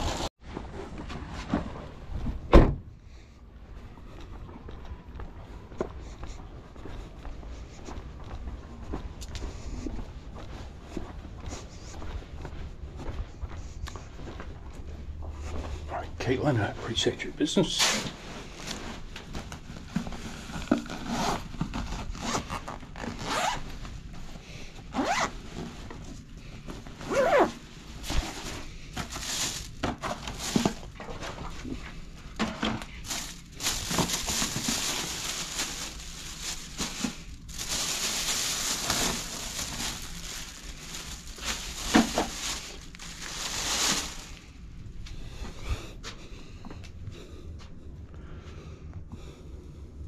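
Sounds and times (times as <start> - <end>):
plastic bags rustling: 0.0 - 0.3, 24.9 - 44.8
zipper pulled open: 20.7 - 23.6, 24.9 - 25.3, 27.1 - 27.6.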